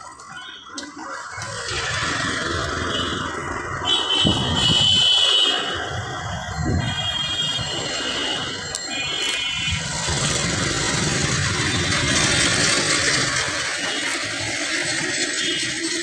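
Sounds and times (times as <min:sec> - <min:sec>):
road noise rushing: 0:01.0 - 0:16.0
vehicle engine running: 0:09.7 - 0:16.0.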